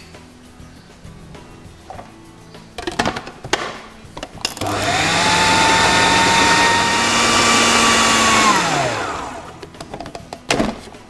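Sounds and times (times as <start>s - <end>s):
food processor motor: 4.5s - 9.7s.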